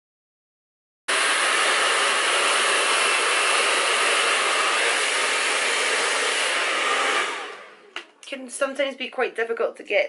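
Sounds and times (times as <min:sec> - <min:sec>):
hair dryer running: 0:01.1 - 0:08.2.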